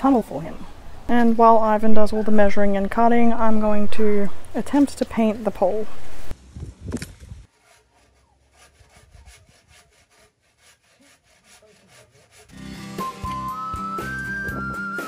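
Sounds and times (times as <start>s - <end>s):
hand saw cutting wood: 7.0s - 13.4s
music with whistled melody: 12.6s - 15.0s.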